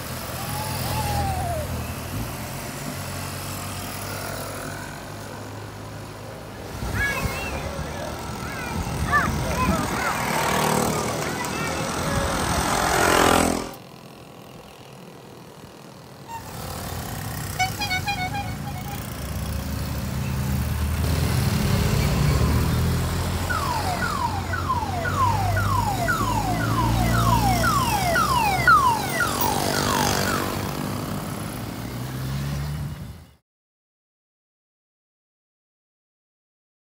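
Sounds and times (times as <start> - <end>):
moped engines passing: 0.0 - 33.2
rapid beeping horn: 16.3 - 16.8, 17.4 - 19.3
falling siren-like tones: 23.3 - 30.8.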